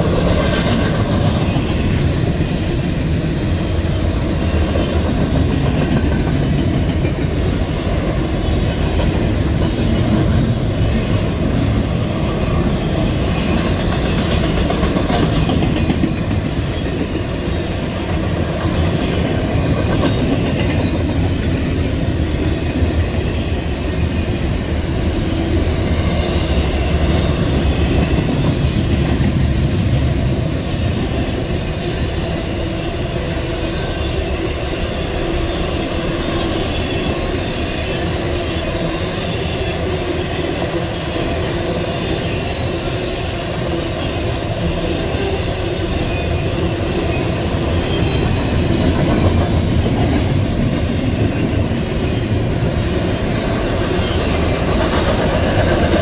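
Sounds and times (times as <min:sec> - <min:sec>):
freight train wheels rumbling: 0:00.0 - 0:56.0
wheels clacking on rails: 0:00.0 - 0:56.0.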